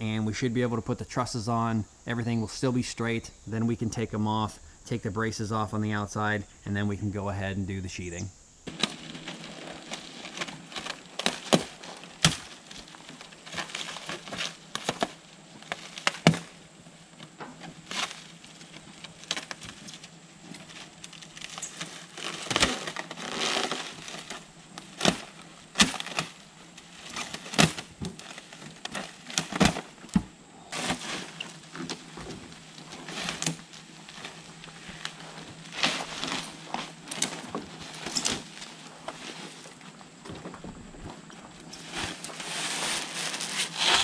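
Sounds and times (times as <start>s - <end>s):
plastic wrap crinkling tear: 8.7s - 39.7s, 41.8s - 44.0s
shrink wrap crackling and ripping: 8.7s - 39.7s, 41.7s - 44.0s.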